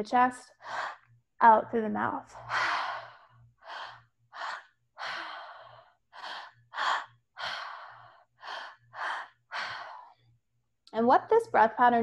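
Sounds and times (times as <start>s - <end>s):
woman breathing through mouth: 2.4s - 10.3s.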